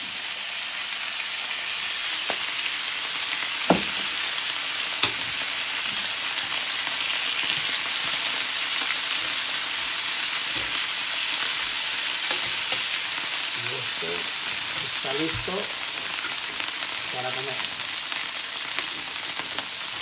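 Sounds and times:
meat and potatoes sizzling in oil: 0.0 - 20.0
tongs clicking against pan: 5.0 - 5.3, 12.3 - 13.0.

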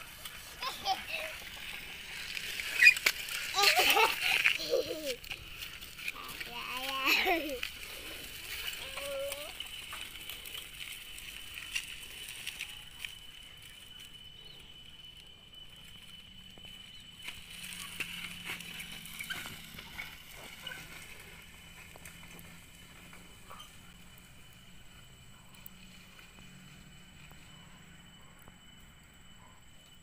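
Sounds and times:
bicycle clicking and rattling: 0.0 - 24.7.

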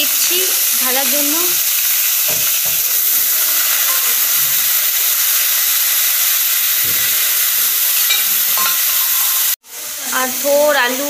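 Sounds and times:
vegetables sizzling in hot oil: 0.0 - 11.0
ladle stirring in pan: 0.6 - 9.6.

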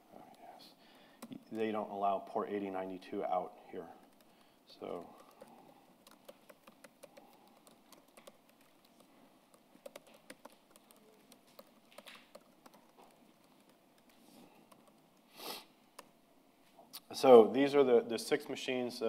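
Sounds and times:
typing on keyboard: 3.9 - 15.3.

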